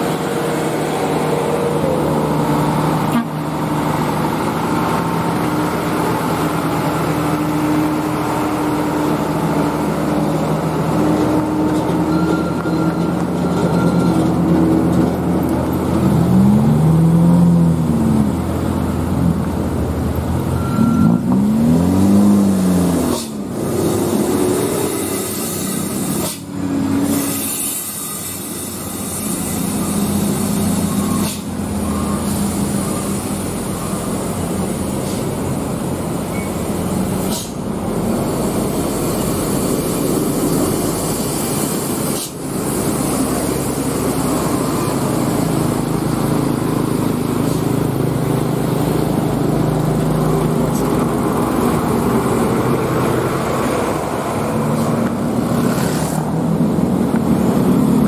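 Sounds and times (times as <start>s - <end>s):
bus diesel engines droning: 0.0s - 58.0s.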